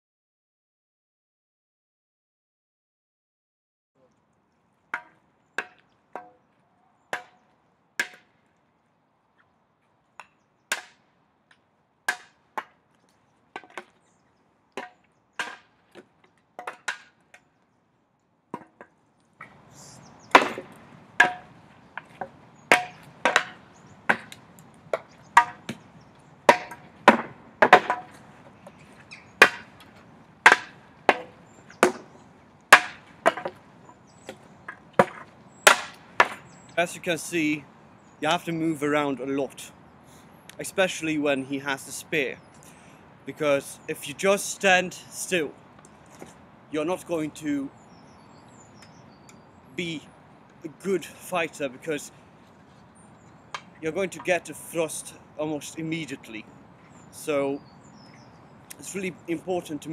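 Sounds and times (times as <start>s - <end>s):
steady background hiss: 19.4s - 59.9s
practice weapons clacking on shields: 20.3s - 24.4s, 26.5s - 33.6s.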